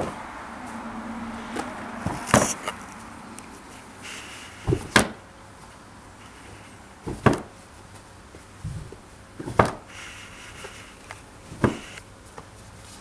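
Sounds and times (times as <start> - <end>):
heavy rugs landing with thuds: 4.6 - 5.2, 7.0 - 7.6, 8.6 - 9.8.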